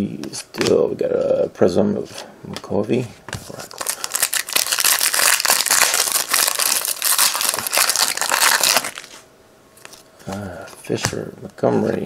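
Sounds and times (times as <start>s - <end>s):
foil wrapper crinkling and tearing: 3.5s - 9.2s.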